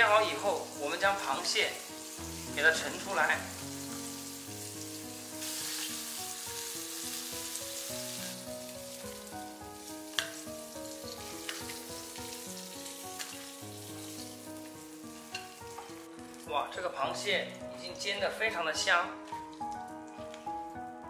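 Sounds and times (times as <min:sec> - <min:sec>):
crabs sizzling in oil: 0:00.0 - 0:18.1
soft background music: 0:00.0 - 0:21.0.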